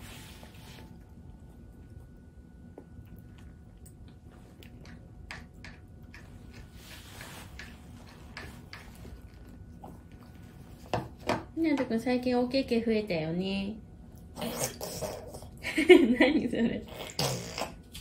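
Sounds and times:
low room hum: 0.0s - 18.0s
baby chewing with mouth clicks: 1.7s - 10.2s.

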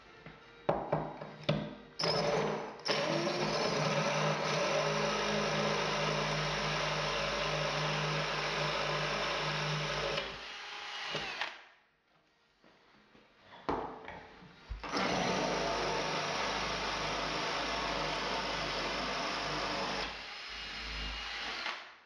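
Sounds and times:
drill grinding into tile: 2.0s - 11.6s, 14.8s - 21.9s.

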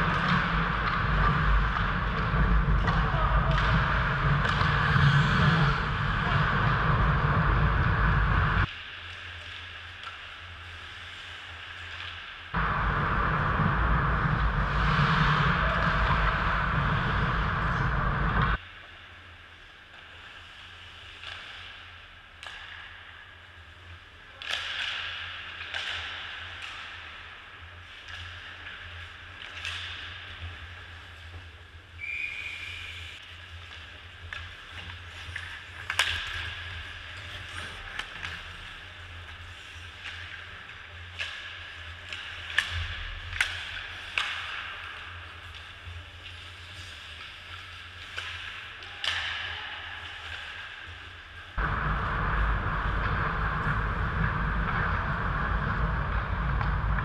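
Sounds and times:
low arena hum: 0.0s - 57.0s
sticks and puck clacking: 0.0s - 57.0s
loud rushing noise: 12.6s - 18.6s, 51.6s - 57.0s
skate blades scraping ice: 25.0s - 57.0s.

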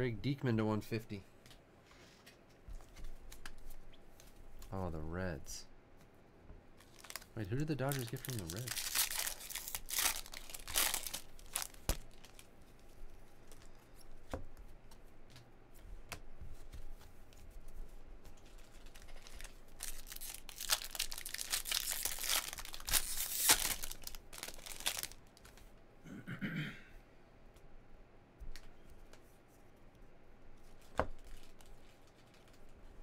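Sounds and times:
foil wrapper crinkling: 6.8s - 12.5s, 18.5s - 25.5s
cards rustling: 6.8s - 14.3s, 18.2s - 25.7s, 30.7s - 32.8s.

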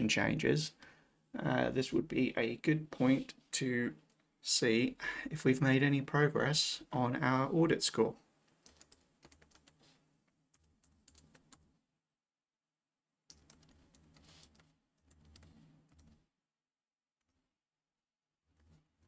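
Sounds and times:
faint keyboard typing: 8.4s - 11.7s, 13.3s - 16.2s.

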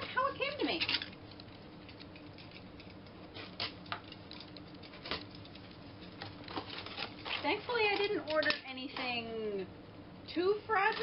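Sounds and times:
cardboard crackling and rustling: 3.3s - 8.4s.

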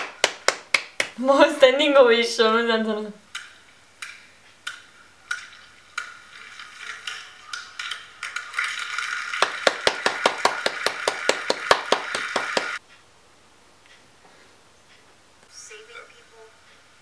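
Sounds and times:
hand claps: 0.0s - 1.2s, 9.3s - 12.8s
crowd applause through tv speaker: 9.2s - 12.8s.

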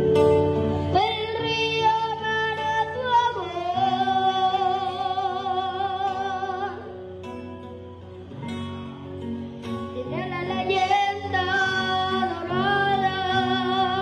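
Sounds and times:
boy singing into a microphone: 0.8s - 7.0s, 9.9s - 14.0s.

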